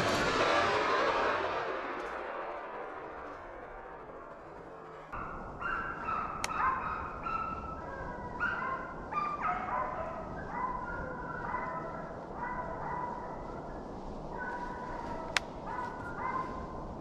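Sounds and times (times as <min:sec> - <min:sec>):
hounds baying: 0:05.0 - 0:16.9.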